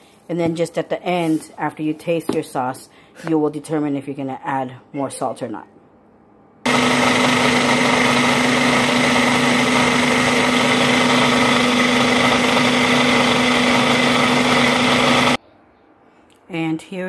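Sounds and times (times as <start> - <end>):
blender motor whining: 6.7 - 15.4.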